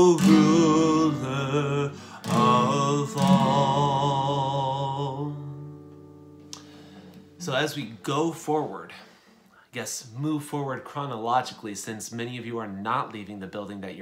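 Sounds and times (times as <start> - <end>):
man singing: 0.0 - 5.7
guitar accompaniment: 0.0 - 8.4.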